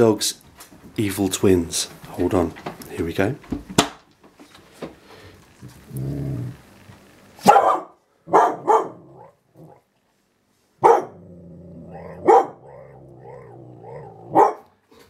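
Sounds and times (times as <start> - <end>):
dog growling: 5.6 - 6.7, 8.5 - 9.9, 10.9 - 14.7
dog barking: 7.4 - 9.8, 10.8 - 11.2, 11.9 - 14.7.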